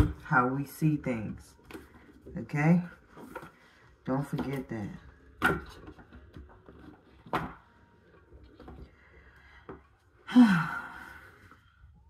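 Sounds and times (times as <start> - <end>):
person sighing: 10.2 - 11.4.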